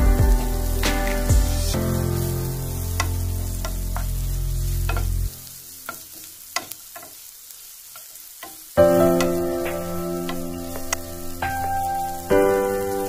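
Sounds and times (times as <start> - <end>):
background music: 0.0 - 5.4, 8.8 - 13.0
food sizzling in a frying pan: 0.0 - 13.0
spatula tapping and scraping pan: 4.8 - 5.2, 5.9 - 7.3, 7.9 - 9.4.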